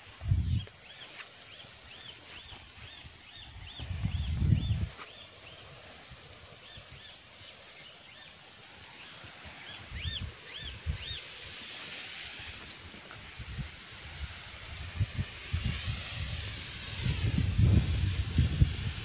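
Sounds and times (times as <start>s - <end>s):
faint outdoor hiss: 0.0s - 19.0s
small bird chirping: 0.3s - 5.7s, 6.6s - 11.3s.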